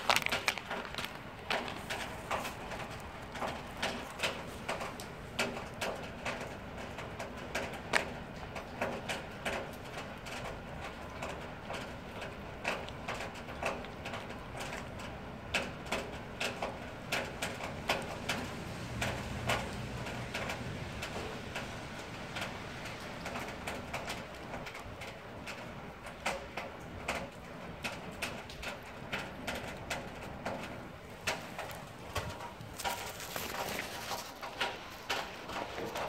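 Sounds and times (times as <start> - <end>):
cat chewing food: 0.0 - 7.2, 10.8 - 16.8, 30.5 - 36.0.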